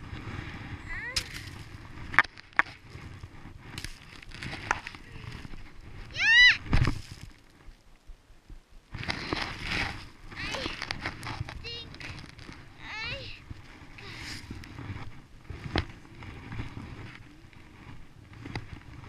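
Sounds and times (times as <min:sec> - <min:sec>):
skis and poles knocking: 0:00.0 - 0:07.3, 0:09.0 - 0:19.0
high-pitched vocal squeal: 0:06.1 - 0:06.6.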